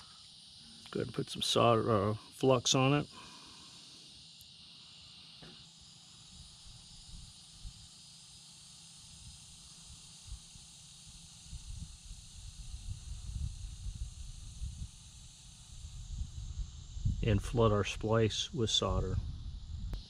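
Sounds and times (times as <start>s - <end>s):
insects chirring: 0.0s - 20.0s
wind rumble on microphone: 11.4s - 20.0s.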